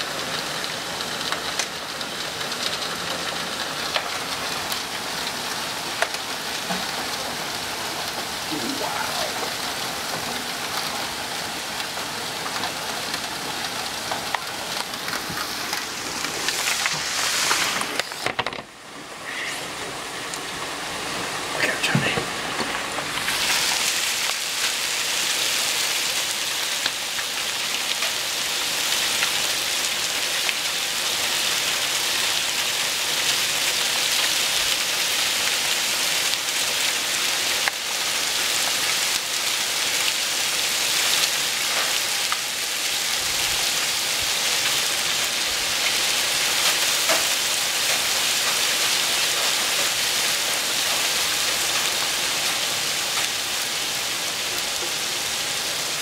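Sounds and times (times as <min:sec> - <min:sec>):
faint hail ticks: 0:00.0 - 0:18.1, 0:21.6 - 0:55.2
heavy rain and hail: 0:00.0 - 0:56.0.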